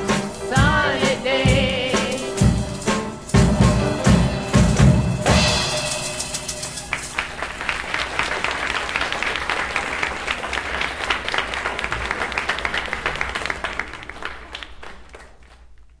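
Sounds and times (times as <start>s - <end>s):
audience applauding on vinyl: 6.6s - 16.0s.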